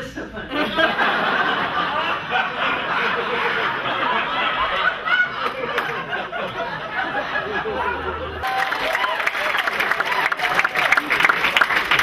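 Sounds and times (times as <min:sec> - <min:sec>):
audience laughing: 0:00.0 - 0:12.0.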